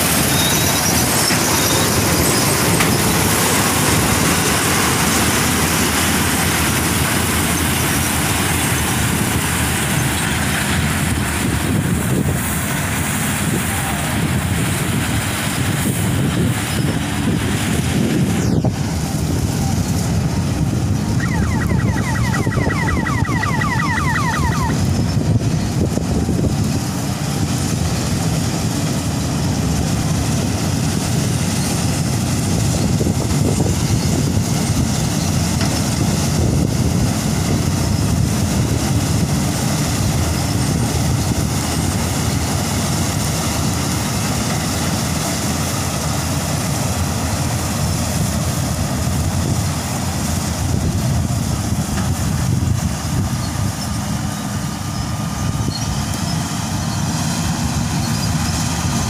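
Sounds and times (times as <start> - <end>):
combine harvester engine rumble: 0.0 - 59.0
machinery noise: 0.0 - 59.0.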